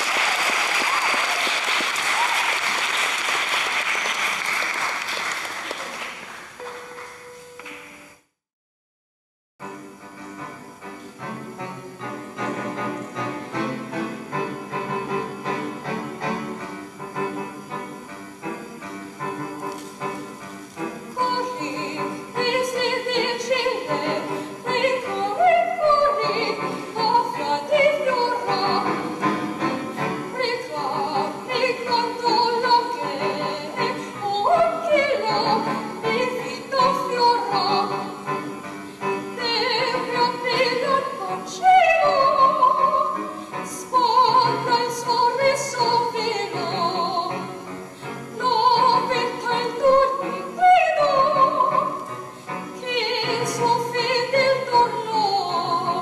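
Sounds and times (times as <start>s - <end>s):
piano accompaniment: 9.6s - 56.0s
woman singing operatically: 21.2s - 29.2s, 30.3s - 38.2s, 39.3s - 47.5s, 48.3s - 52.0s, 52.8s - 56.0s.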